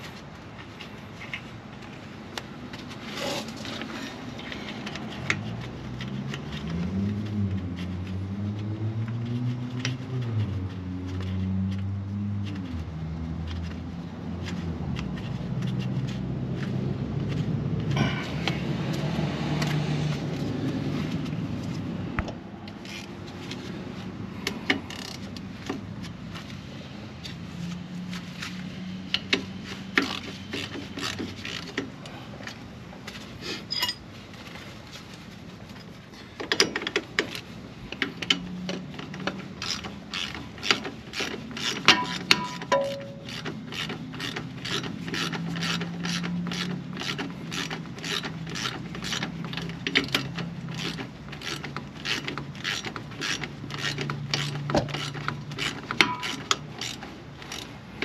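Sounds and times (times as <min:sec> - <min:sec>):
ratchet wrench clicking: 0:22.8 - 0:23.1, 0:24.4 - 0:25.4, 0:29.1 - 0:31.8, 0:36.5 - 0:57.8.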